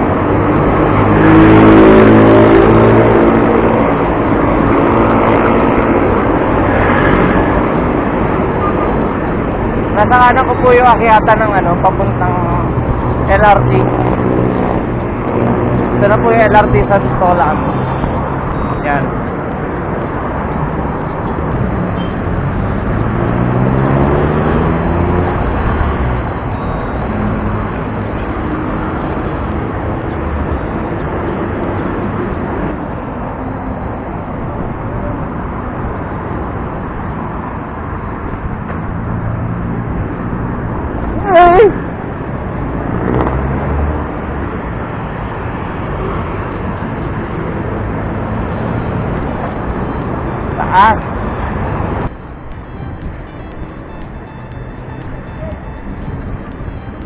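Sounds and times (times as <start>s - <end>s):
passing vehicle engine: 0.0s - 57.0s
road traffic: 0.0s - 57.0s.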